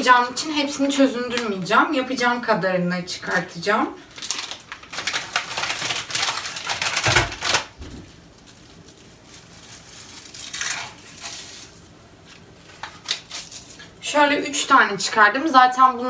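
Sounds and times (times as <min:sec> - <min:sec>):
plastic packaging rustling: 0:03.2 - 0:14.0.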